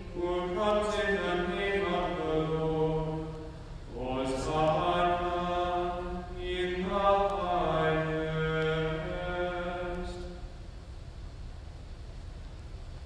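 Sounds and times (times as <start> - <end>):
man singing a chant: 0.0 - 10.5.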